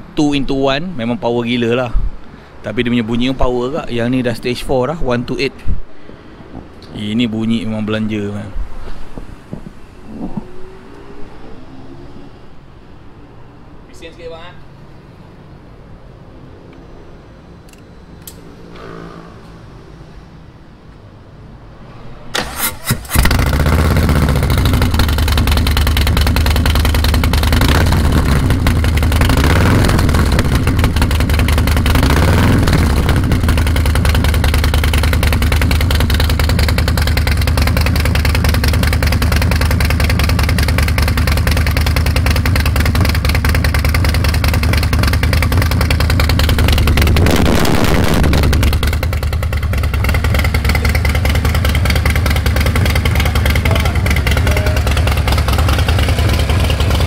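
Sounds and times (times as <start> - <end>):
motorcycle engine idling and revving: 17.7 - 20.6, 22.8 - 57.0.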